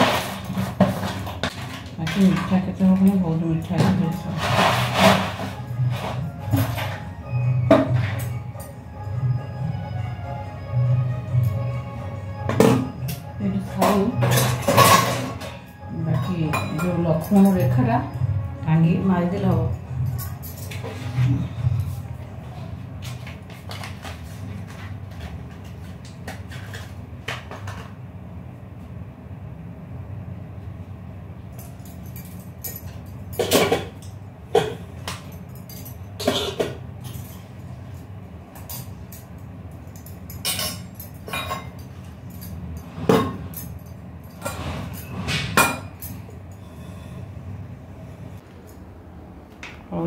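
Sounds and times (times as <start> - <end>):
metal vessels knocking and clinking: 0.0 - 7.0, 12.5 - 18.2, 31.8 - 37.4, 38.5 - 46.4
steady low hum: 0.0 - 50.0.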